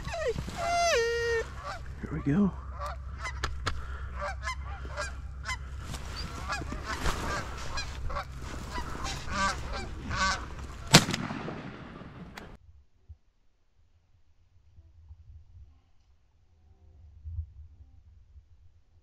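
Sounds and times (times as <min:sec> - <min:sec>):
geese honking: 0:00.0 - 0:11.2
shotgun blast: 0:10.9 - 0:12.6.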